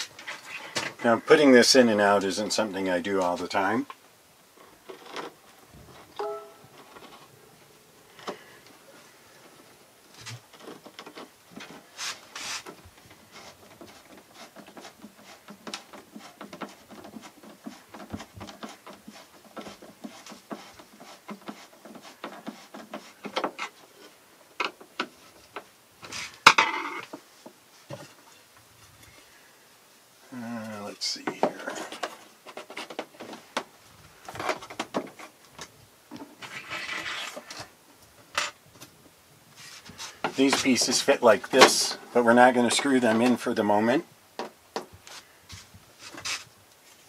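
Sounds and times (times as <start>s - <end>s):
wooden trim strips clattering: 34.2s - 38.6s.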